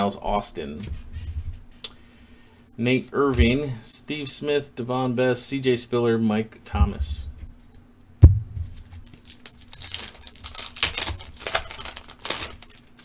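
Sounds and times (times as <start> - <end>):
thump: 8.2 - 9.0
foil wrapper crinkling and tearing: 9.0 - 13.0.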